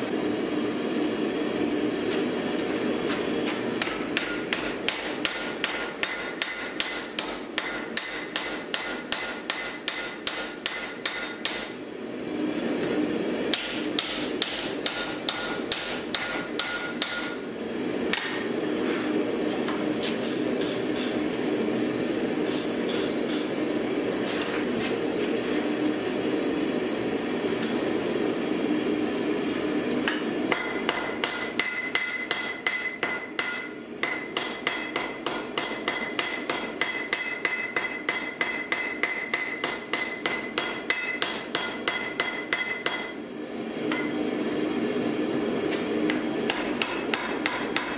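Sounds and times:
hammer striking axe head on anvil: 3.8 - 11.8, 13.5 - 17.4, 18.1 - 18.5, 30.1 - 43.2, 43.9 - 44.2, 46.1 - 47.9.

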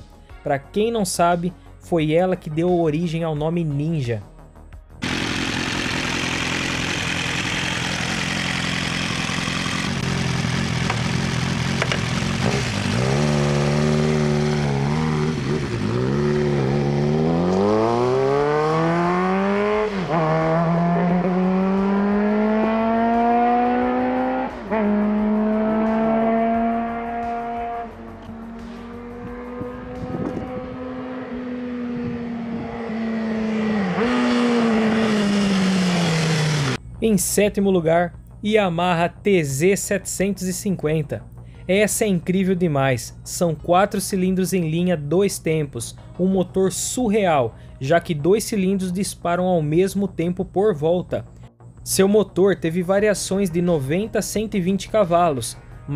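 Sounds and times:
motorcycle engine accelerating: 5.0 - 36.9.

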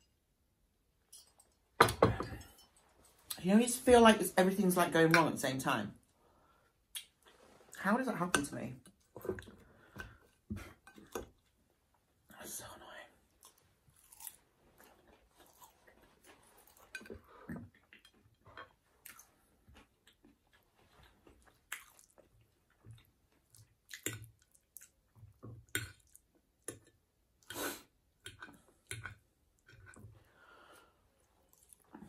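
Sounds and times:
person chewing food: 13.4 - 30.2, 31.2 - 32.0.

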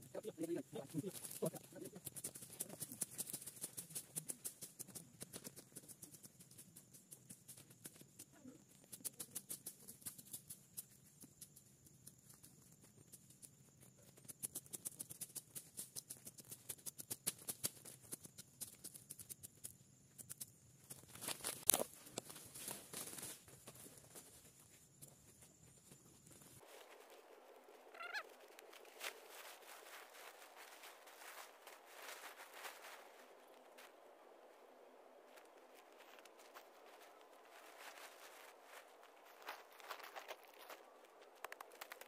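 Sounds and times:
plant stems crackling and snapping: 20.2 - 23.2.

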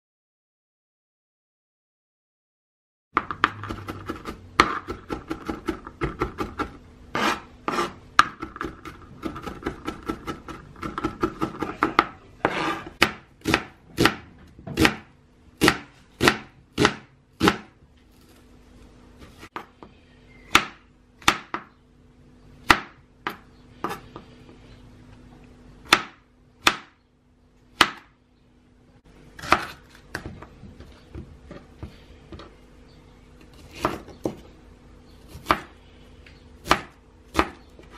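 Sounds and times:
knife chopping on plastic board: 3.2 - 17.8, 20.5 - 21.7, 25.9 - 27.0, 27.8 - 28.1, 29.4 - 32.4, 33.6 - 34.4, 35.3 - 35.7, 36.6 - 37.7.

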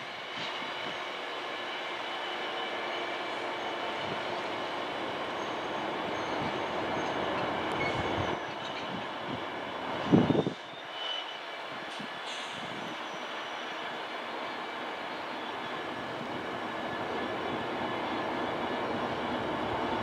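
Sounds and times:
freight train wheel rumble: 0.0 - 20.0
high brake squeal: 0.4 - 4.4, 5.3 - 9.1, 10.1 - 14.0, 15.1 - 16.0.

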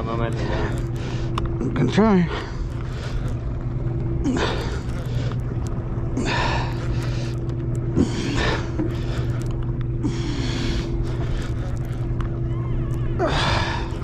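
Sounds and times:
boat engine droning: 0.0 - 14.0
man breathing hard: 6.1 - 12.0.

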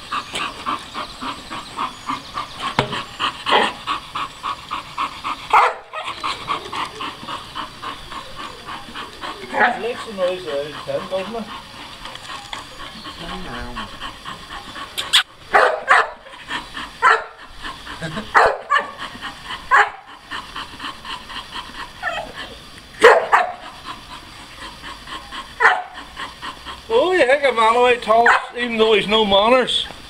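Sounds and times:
dog barking: 5.5 - 6.2, 15.5 - 16.2, 17.0 - 17.4, 18.3 - 19.0, 19.7 - 20.0, 23.0 - 23.7, 25.6 - 26.0, 28.2 - 28.6.

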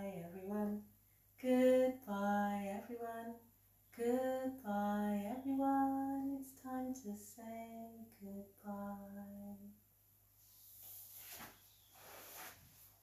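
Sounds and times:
woman singing unaccompanied: 0.0 - 9.8.

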